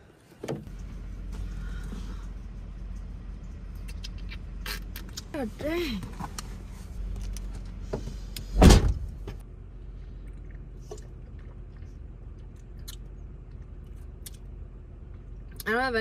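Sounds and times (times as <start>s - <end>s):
truck door slamming: 8.6s - 9.4s.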